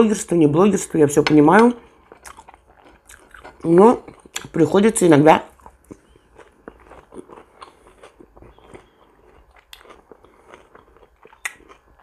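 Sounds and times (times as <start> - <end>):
close chewing with wet mouth clicks: 2.0 - 4.5, 5.6 - 12.0.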